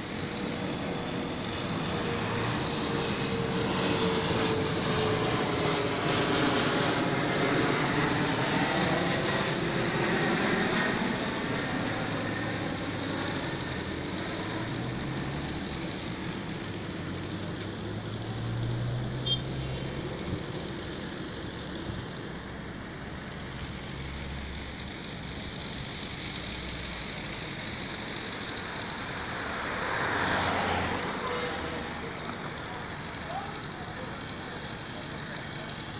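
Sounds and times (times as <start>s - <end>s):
distant road traffic rumble: 0.0s - 35.9s
low engine hum: 0.0s - 35.9s.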